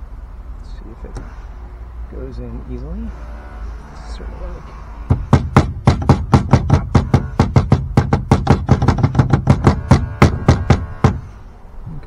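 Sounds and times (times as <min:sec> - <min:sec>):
hammer tapping on metal: 0:05.1 - 0:11.2.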